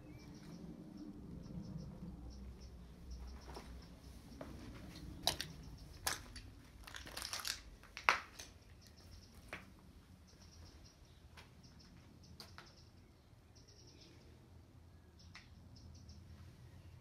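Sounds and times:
footsteps crunching on broken glass: 6.0s - 8.5s.

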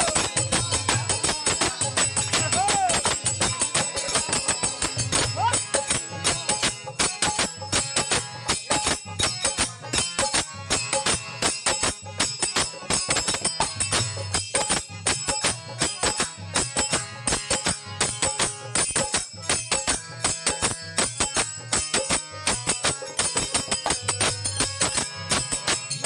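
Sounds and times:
harmonium: 0.0s - 26.0s
jingling hand percussion: 0.0s - 26.0s.

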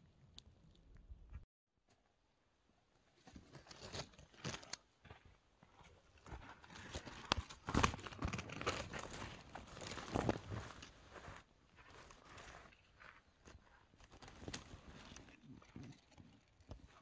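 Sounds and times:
leaves rustling and crackling: 7.3s - 11.4s.

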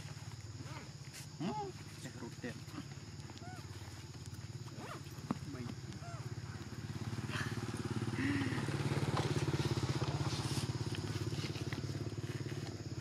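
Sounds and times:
small engine puttering: 3.5s - 13.0s.

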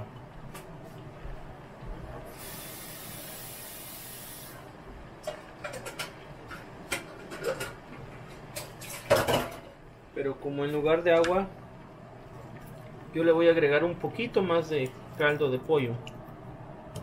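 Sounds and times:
broth hissing in frying pan: 2.3s - 4.7s.

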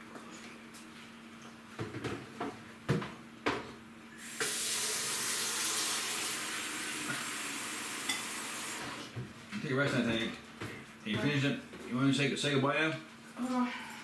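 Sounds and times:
tap running into sink: 4.3s - 4.9s.

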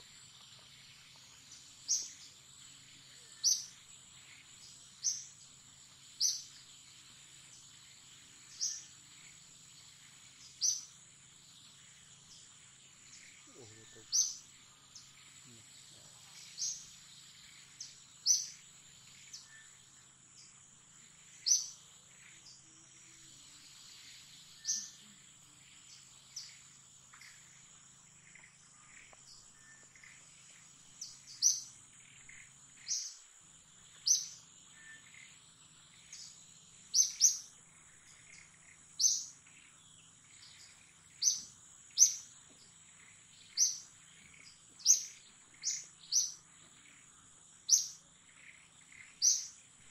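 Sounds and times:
bird chirping: 0.0s - 49.9s
high insect drone: 0.0s - 49.9s.

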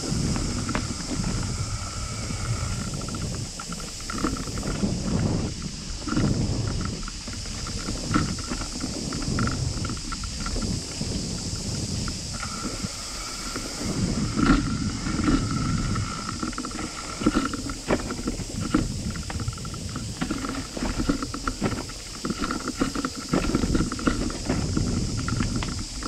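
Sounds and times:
bicycle rattling on dirt trail: 0.0s - 26.0s
wind on microphone: 0.0s - 26.0s
sharp knocks from bumps: 14.4s - 26.0s.

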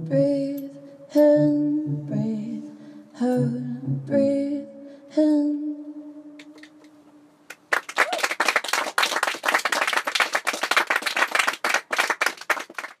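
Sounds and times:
audience applause: 7.7s - 13.0s.

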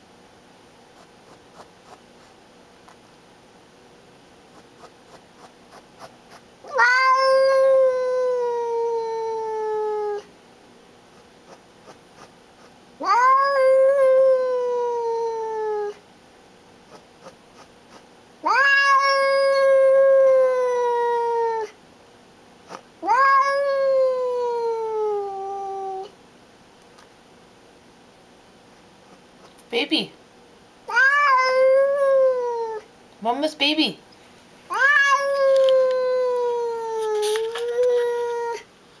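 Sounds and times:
cat yowling: 6.6s - 10.3s, 13.0s - 16.0s, 18.4s - 21.8s, 23.0s - 26.1s, 30.9s - 32.9s, 34.7s - 38.7s.

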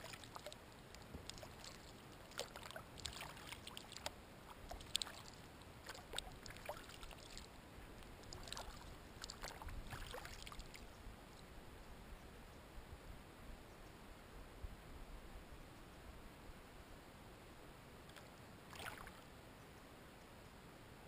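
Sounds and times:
paddle splashing in water: 0.0s - 7.5s, 8.2s - 10.9s, 18.1s - 19.2s.

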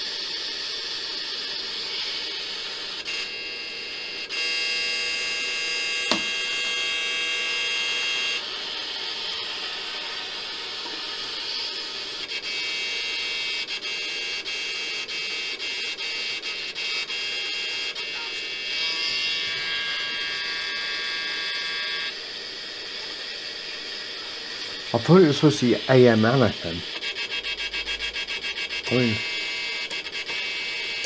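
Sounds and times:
steady whining tones: 0.0s - 31.0s
sharp click: 6.1s - 6.3s
radio static hiss: 6.1s - 6.4s, 15.9s - 31.0s.

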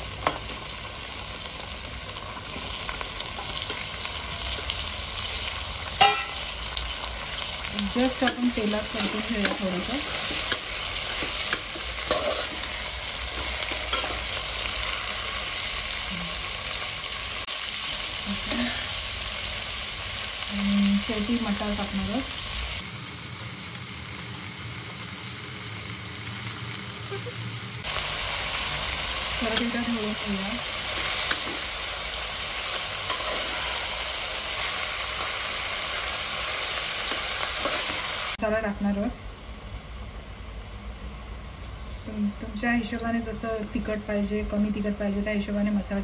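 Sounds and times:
vegetables sizzling in oil: 0.0s - 39.1s
metal spatula scraping pot: 8.2s - 14.4s, 32.7s - 33.9s.

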